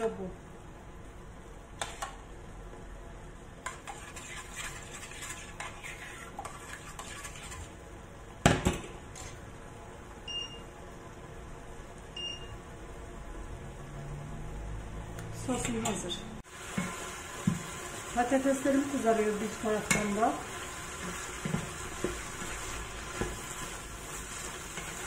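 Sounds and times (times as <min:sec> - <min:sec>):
metal spoon scraping saucepan: 0:03.6 - 0:07.7
hob touch control beep: 0:10.3 - 0:10.6, 0:12.2 - 0:12.6.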